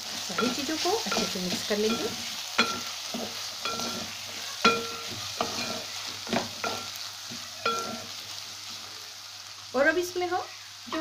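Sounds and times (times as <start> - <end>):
food sizzling in a pan: 0.0 - 11.0
spatula knocking metal pan: 0.4 - 7.0.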